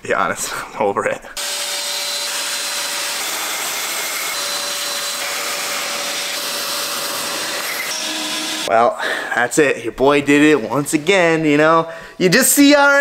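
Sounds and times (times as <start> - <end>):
shop vacuum running: 1.4 - 8.7.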